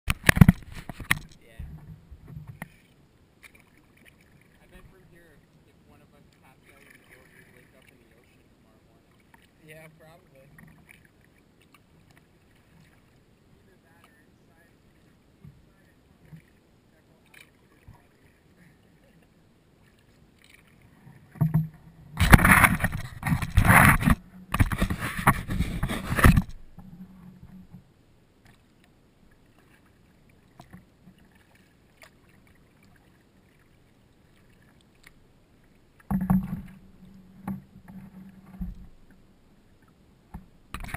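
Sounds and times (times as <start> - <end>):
paddle strokes splashing: 0.1 - 40.9
water drips and clicks: 39.8 - 40.9.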